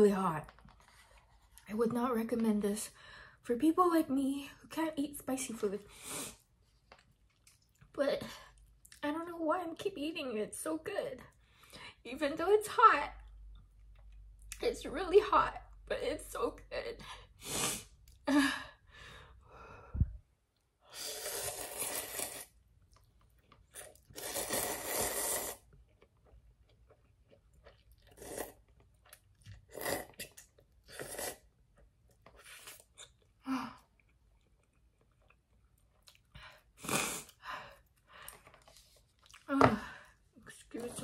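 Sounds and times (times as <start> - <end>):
chewing and mouth sounds: 6.6 - 9.0, 21.5 - 39.5
person slurping noodles: 20.9 - 22.6, 23.7 - 25.7, 28.0 - 28.7, 29.6 - 31.5, 36.7 - 37.4.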